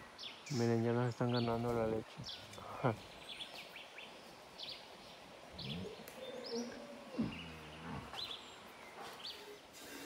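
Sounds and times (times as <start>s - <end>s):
birds chirping: 0.0s - 10.0s
cow lowing: 5.6s - 8.4s.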